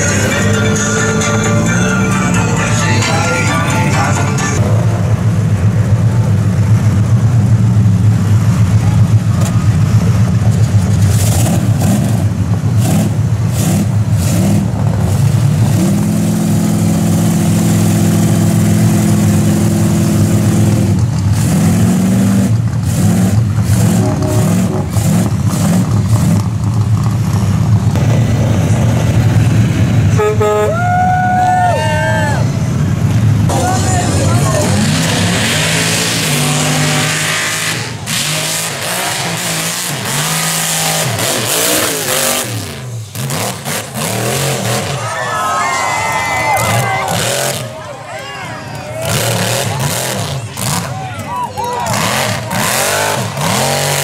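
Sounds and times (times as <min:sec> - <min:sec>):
heavy engines running hard: 0:00.0 - 0:54.0
engine revving: 0:07.9 - 0:30.7, 0:32.6 - 0:45.1, 0:46.6 - 0:47.9, 0:48.8 - 0:51.0, 0:51.6 - 0:54.0.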